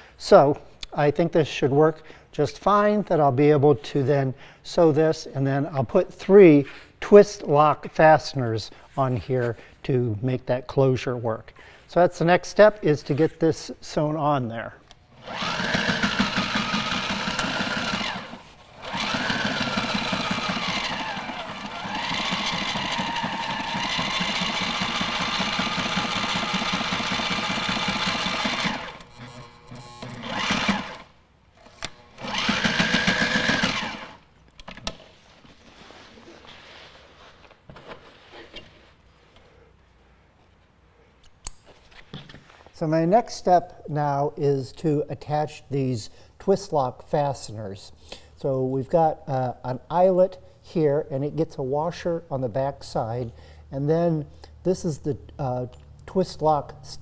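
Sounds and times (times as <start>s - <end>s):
sewing machine stitching: 15.2s - 34.2s.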